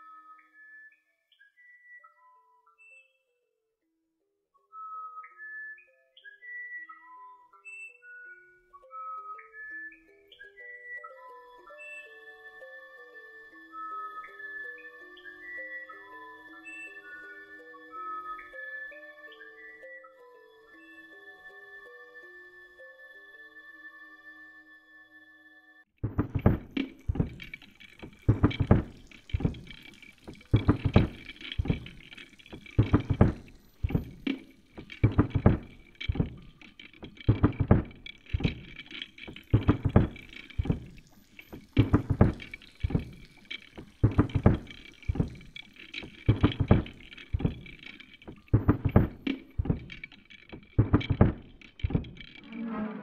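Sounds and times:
percussive knocks: 26.0s - 52.4s.

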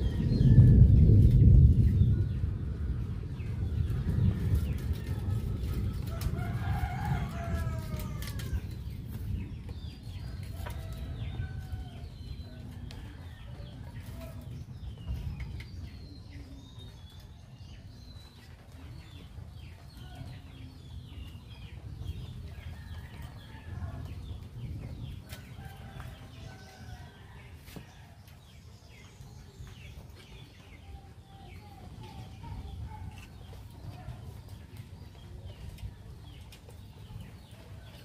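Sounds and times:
steady low rumble: 0.0s - 27.6s.

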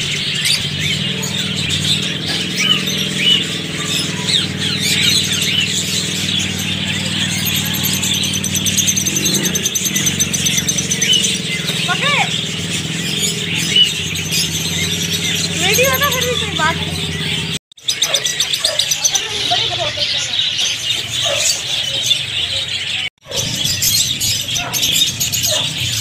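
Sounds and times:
motorcycle engine humming: 0.0s - 26.0s
parakeets chirping and chattering: 0.0s - 26.0s.

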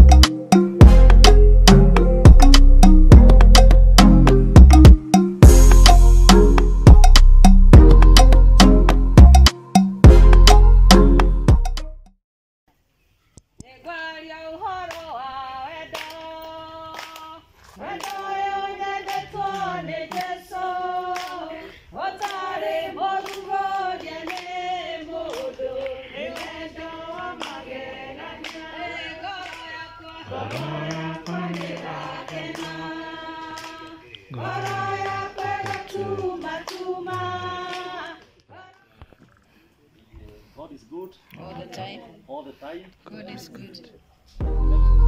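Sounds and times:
women singing in chorus: 13.6s - 38.6s
hand claps: 15.9s - 18.3s, 19.0s - 20.4s, 21.1s - 21.5s, 22.2s - 22.5s, 23.2s - 24.6s, 25.2s - 26.6s, 27.4s - 27.6s, 28.4s - 28.7s, 29.4s - 29.7s, 30.4s - 38.4s.

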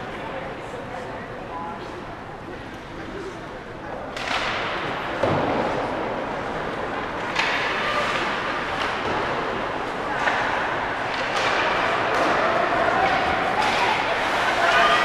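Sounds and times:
thud: 5.2s - 5.8s.

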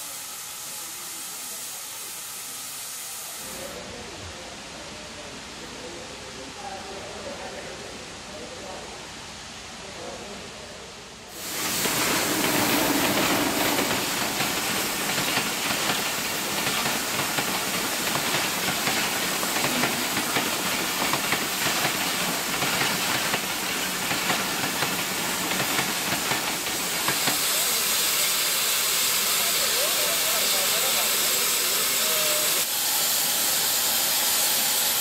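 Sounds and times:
steam locomotive hissing: 0.0s - 4.0s, 11.2s - 35.0s
train wheels clattering: 11.4s - 27.7s.

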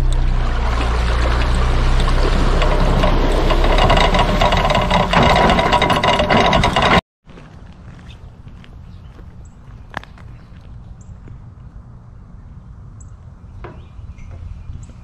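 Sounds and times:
low engine hum: 0.0s - 7.0s
water rushing along hull: 0.0s - 7.0s.

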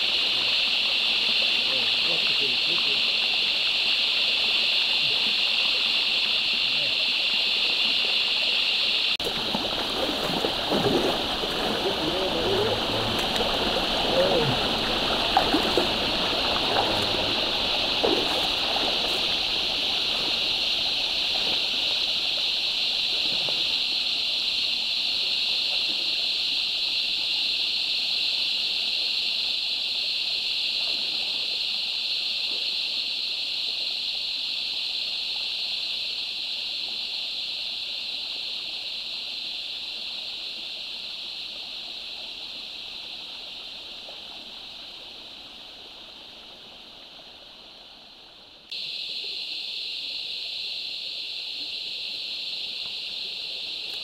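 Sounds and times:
water splashes: 0.0s - 29.1s, 30.6s - 32.8s
water running over rocks: 0.0s - 36.4s.

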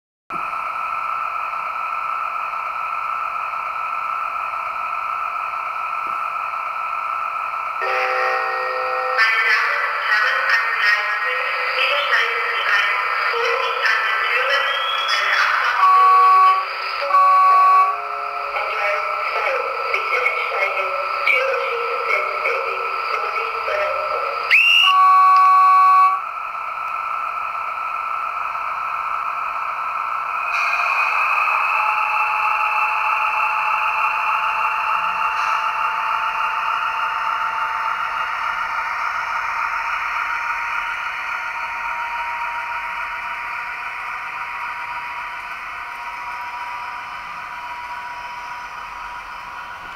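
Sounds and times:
model locomotive engine whine: 0.3s - 49.9s
loud held signal tone: 7.8s - 26.3s, 30.4s - 43.0s
rising whistle: 14.5s - 18.6s, 24.5s - 26.2s, 30.4s - 35.6s.

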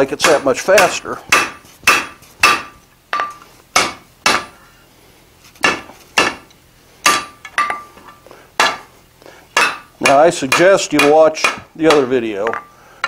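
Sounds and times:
hammer striking hot iron on anvil: 0.1s - 4.6s, 5.6s - 8.9s, 9.6s - 12.8s
anvil ringing: 9.6s - 12.8s.

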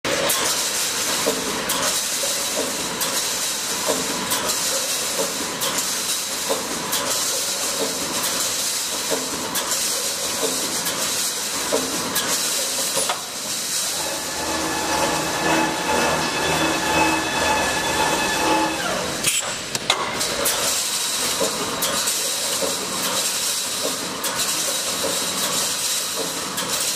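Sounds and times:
welding sparks hissing and crackling: 0.1s - 26.9s
machine hum with tones: 13.9s - 19.4s.

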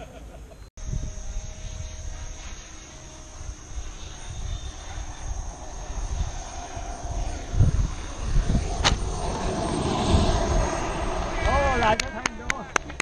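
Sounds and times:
model jet high whine: 0.8s - 13.0s
low uneven rumble: 3.1s - 13.0s.

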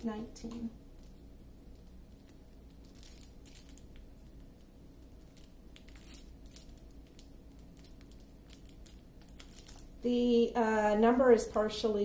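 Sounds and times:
plastic bag crinkling: 0.9s - 10.0s.

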